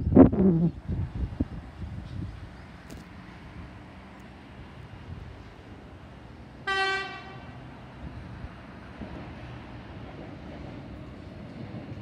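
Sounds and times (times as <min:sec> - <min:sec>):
train rumble: 0:00.0 - 0:12.0
train horn toot: 0:06.6 - 0:07.5.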